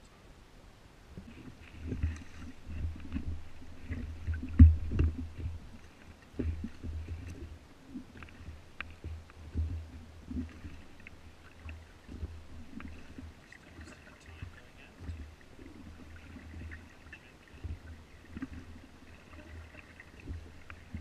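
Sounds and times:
oars splashing: 0:01.1 - 0:21.0
low thumps: 0:01.2 - 0:05.8.

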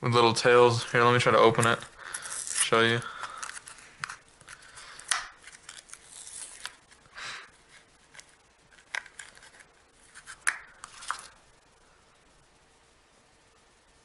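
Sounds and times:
plastic package crinkling and tearing: 0:01.6 - 0:07.0.

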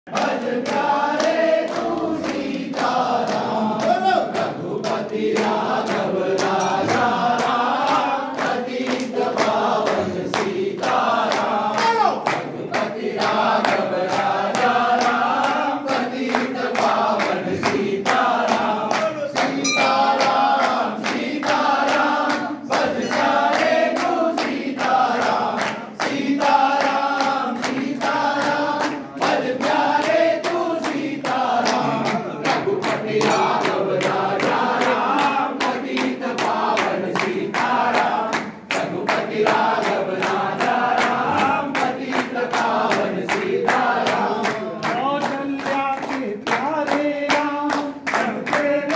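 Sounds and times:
men singing in unison: 0:00.1 - 0:48.9
rhythmic hand-clapping: 0:00.1 - 0:48.9.

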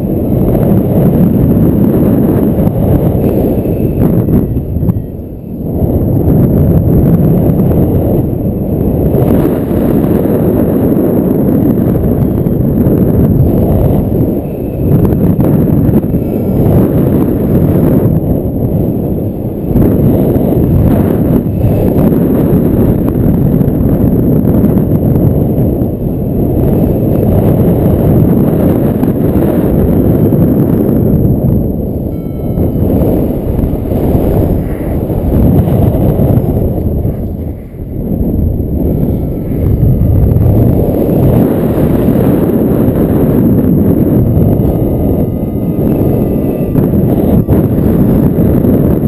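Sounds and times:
wind buffeting microphone: 0:00.0 - 0:49.0
faint high tone: 0:32.0 - 0:35.1, 0:44.2 - 0:49.0.

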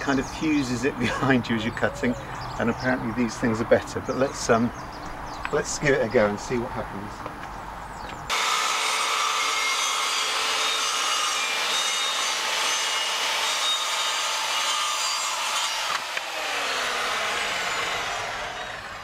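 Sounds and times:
circular saw cutting plastic: 0:08.3 - 0:19.0.

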